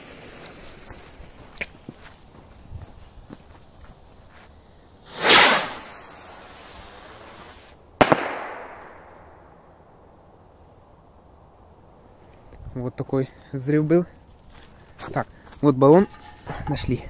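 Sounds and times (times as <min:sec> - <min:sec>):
firework rocket whooshing: 0:04.9 - 0:08.7
firework bang: 0:05.1 - 0:09.2.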